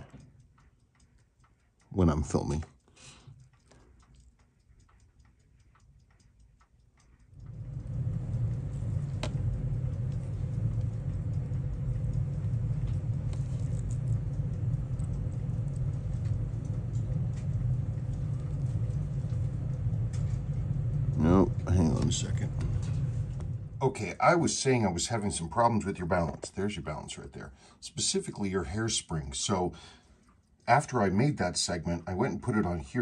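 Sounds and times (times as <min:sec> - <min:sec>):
faint rapid ticking: 0:00.0 - 0:33.0
low mechanical rumble: 0:05.7 - 0:27.6.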